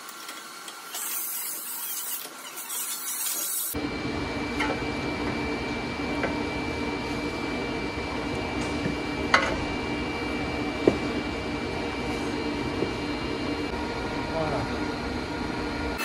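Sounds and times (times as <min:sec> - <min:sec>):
workshop machine humming: 0:00.0 - 0:16.0.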